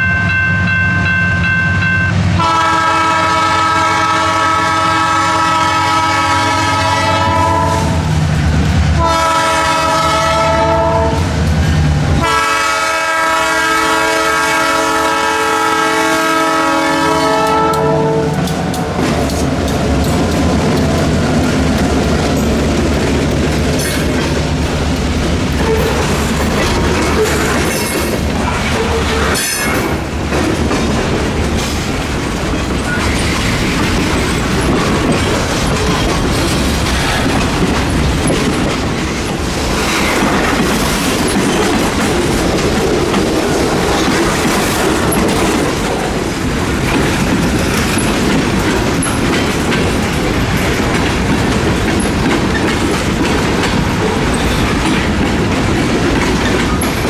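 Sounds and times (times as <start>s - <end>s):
freight train wheels clattering on rails: 0.0s - 57.0s.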